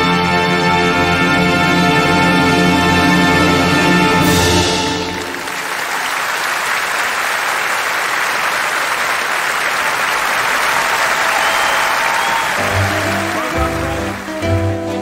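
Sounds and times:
large audience applauding: 4.2 - 15.0.

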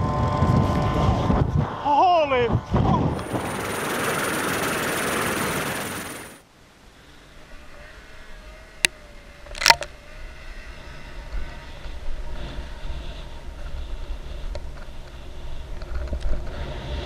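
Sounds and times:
wind rumble: 2.4 - 6.4
snowmobile engine running: 3.2 - 6.4.

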